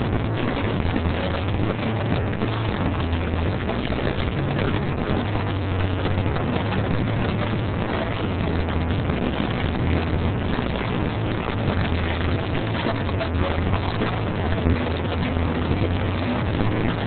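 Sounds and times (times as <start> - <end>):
line-dancing session din: 0.0 - 17.0
low hum: 0.0 - 17.0.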